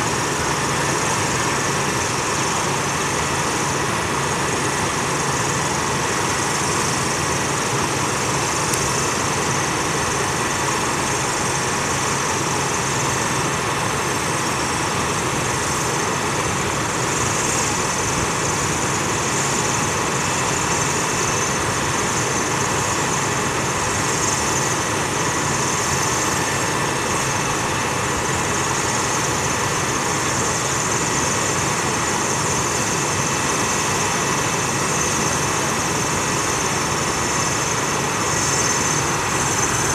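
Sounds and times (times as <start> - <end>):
hydraulic power unit engine running: 0.0 - 39.9.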